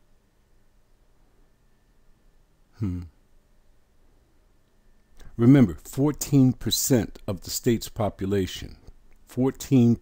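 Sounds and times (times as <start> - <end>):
man's brief wordless vocal sound: 2.8 - 3.2.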